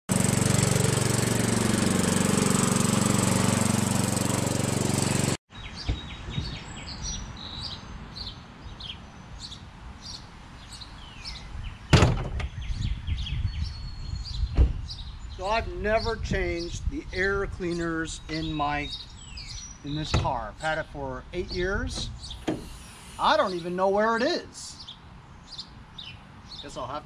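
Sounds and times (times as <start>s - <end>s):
lawn tractor engine running: 0.1s - 5.4s, 19.9s - 23.7s
birds chirping: 5.5s - 27.0s
loud thump: 11.9s - 12.5s, 14.5s - 14.8s, 20.1s - 20.4s.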